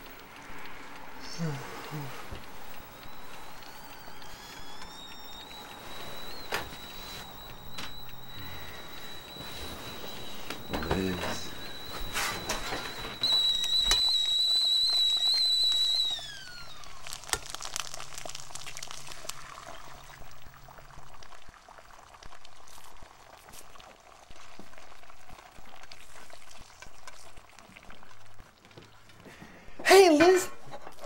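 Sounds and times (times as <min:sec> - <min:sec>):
eggs and bacon sizzling: 0:00.0 - 0:31.0
high whistle sliding down: 0:03.0 - 0:17.1.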